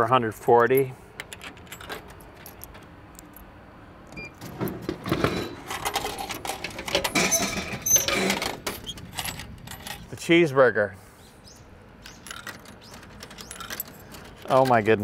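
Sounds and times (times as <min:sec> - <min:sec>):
vending flap clattering: 0:04.3 - 0:10.1, 0:12.0 - 0:15.0.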